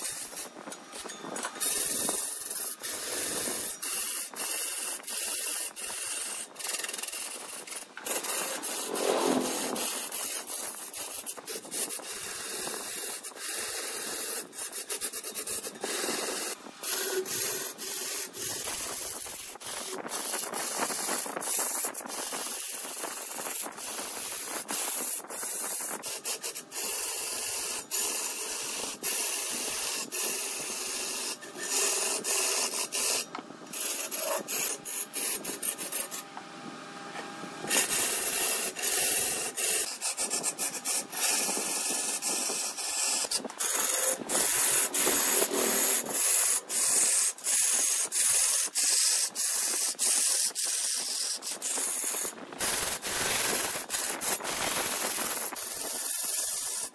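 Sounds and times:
lathe tool scraping spinning wood: 0:00.0 - 0:56.9.

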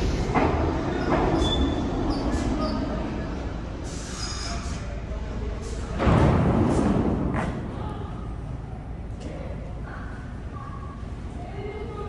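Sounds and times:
train wheels rumbling on rail: 0:00.0 - 0:04.8
high-pitched brake squeals: 0:03.9 - 0:04.8.

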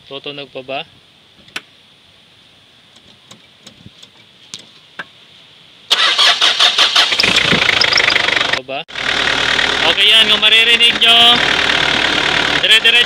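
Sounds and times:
car engine starting and running: 0:05.9 - 0:13.0.

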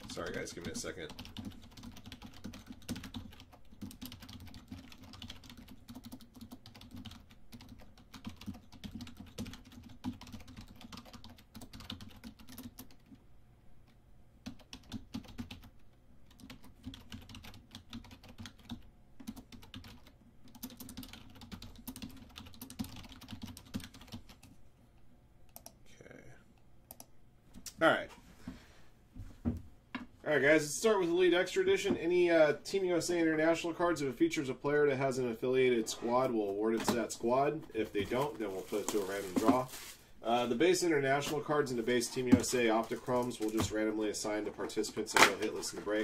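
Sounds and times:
computer keyboard typing: 0:00.0 - 0:13.2, 0:14.4 - 0:24.6, 0:25.5 - 0:25.8.

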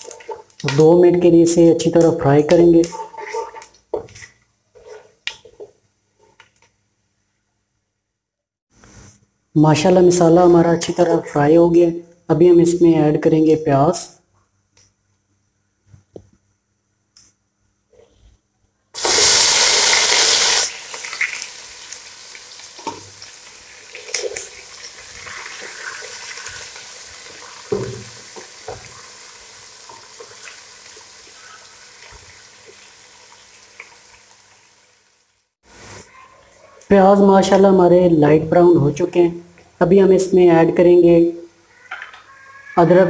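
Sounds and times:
wooden spatula scraping pot: 0:00.0 - 0:00.6, 0:02.6 - 0:06.4
onions sizzling in hot oil: 0:00.0 - 0:05.2, 0:19.0 - 0:36.2.

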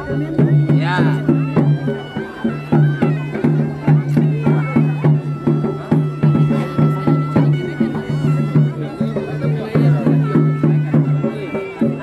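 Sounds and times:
drum strikes: 0:00.0 - 0:12.0
reed wind instrument melody: 0:00.0 - 0:12.0.

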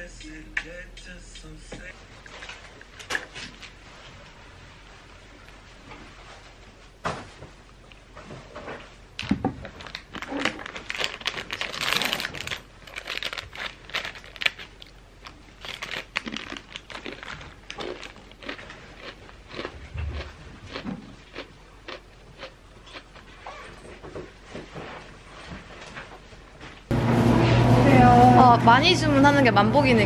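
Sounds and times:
wrapper crinkling and rustling: 0:09.2 - 0:19.1.

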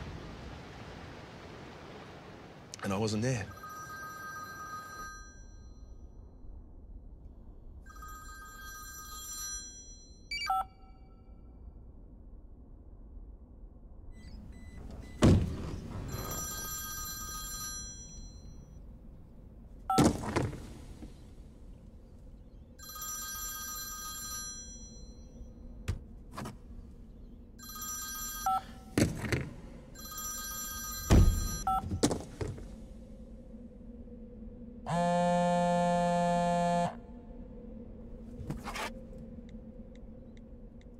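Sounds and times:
telephone ringing: 0:03.5 - 0:05.8, 0:07.9 - 0:10.8, 0:16.1 - 0:18.7, 0:22.8 - 0:25.2, 0:27.6 - 0:29.0, 0:30.0 - 0:32.0.

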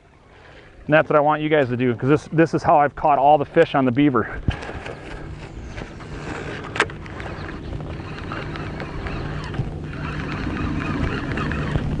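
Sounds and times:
steady low hum: 0:00.0 - 0:12.0
water lapping at boat: 0:04.4 - 0:12.0
fishing reel cranking: 0:04.5 - 0:12.0.

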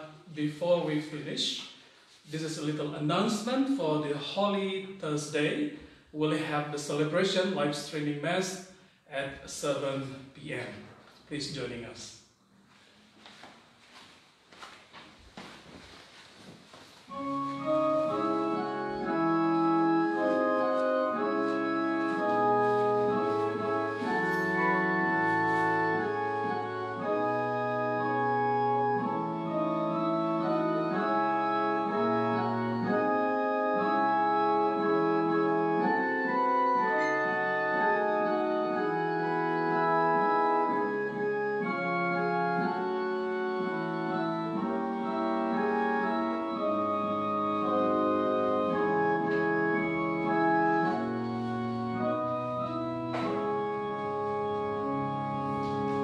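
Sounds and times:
organ playing sustained chords: 0:17.1 - 0:56.0.

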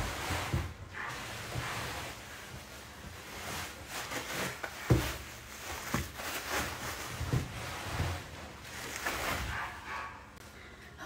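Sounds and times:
packaging rustling: 0:00.0 - 0:09.6.

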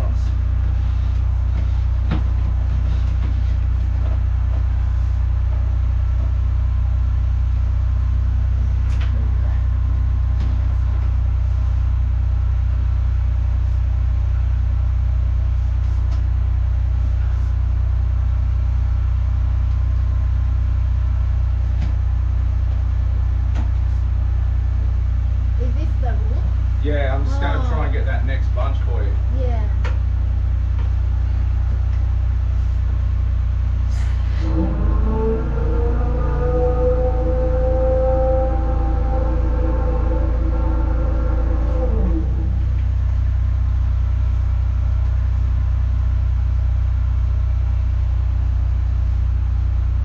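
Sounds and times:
pulsing engine drone: 0:00.0 - 0:50.0.

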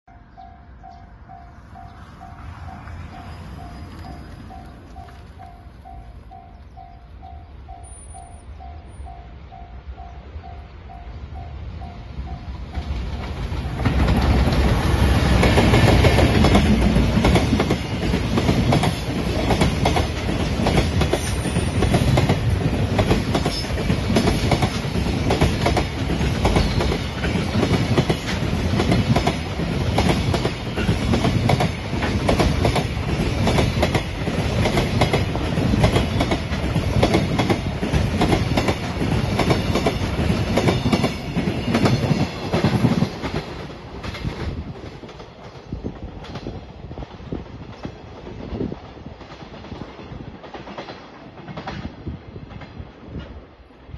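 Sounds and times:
electric locomotive passing: 0:00.1 - 0:53.9
train wheels clattering over rail joints: 0:12.7 - 0:48.5.

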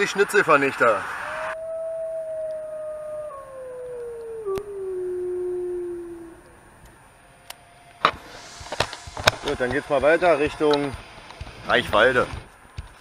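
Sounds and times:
wolf howl: 0:01.2 - 0:07.0.

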